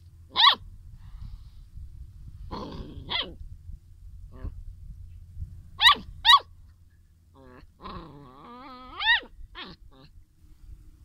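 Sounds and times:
whining growl: 0:02.5 - 0:03.4, 0:04.2 - 0:04.7, 0:07.3 - 0:10.2
young animals yelping: 0:02.5 - 0:03.4, 0:07.3 - 0:10.2.

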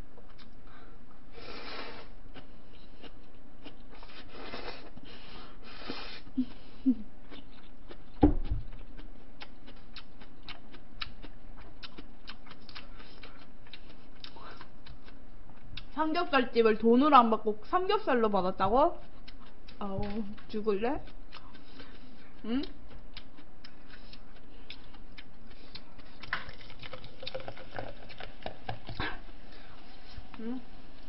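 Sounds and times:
wet chewing: 0:06.3 - 0:16.0, 0:19.0 - 0:30.4
noodles slurped: 0:25.8 - 0:29.1.

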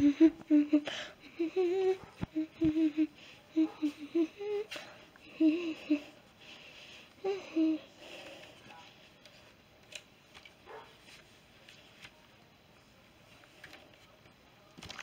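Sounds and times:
person humming a tune: 0:00.0 - 0:06.1.

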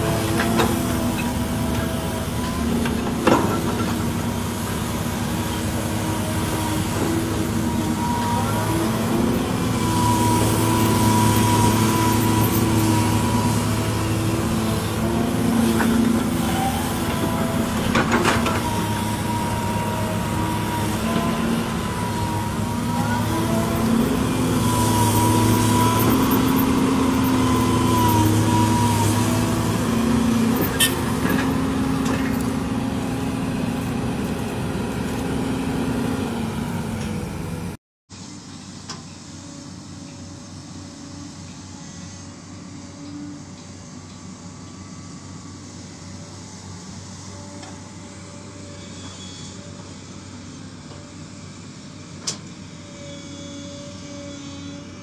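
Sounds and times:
excavator diesel engine under load: 0:00.0 - 0:37.8
hydraulic whine: 0:00.0 - 0:55.0.

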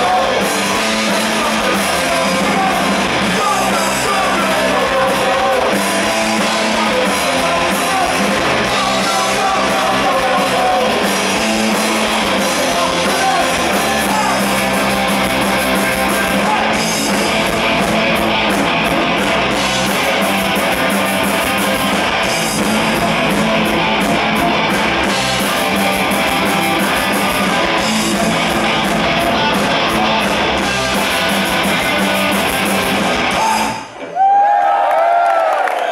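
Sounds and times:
crowd shouting: 0:00.0 - 0:17.3
punk rock band playing live: 0:00.0 - 0:34.1.

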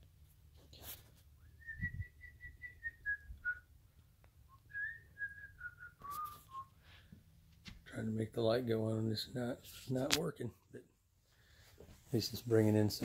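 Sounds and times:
man whistling softly: 0:01.4 - 0:03.7, 0:04.5 - 0:06.8.

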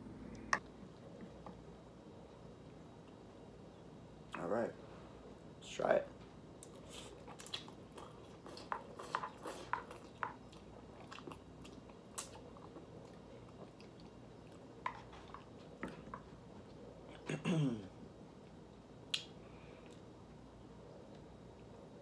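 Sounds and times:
chewing: 0:06.6 - 0:17.2.

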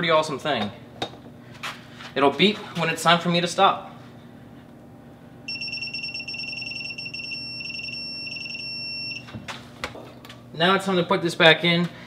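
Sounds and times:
high-pitched electronic beep: 0:05.5 - 0:09.2.

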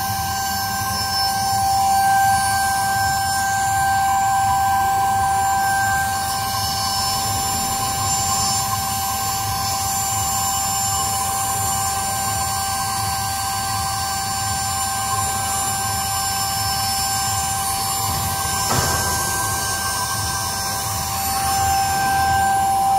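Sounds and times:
high-pitched drill spindle whine: 0:00.0 - 0:22.9
low machine hum: 0:14.6 - 0:22.9
brief knock: 0:18.7 - 0:20.6.

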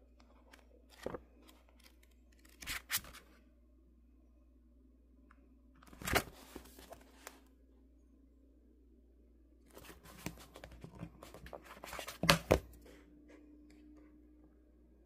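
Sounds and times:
book pages rustling: 0:00.1 - 0:03.4, 0:05.8 - 0:07.4, 0:09.7 - 0:12.6.

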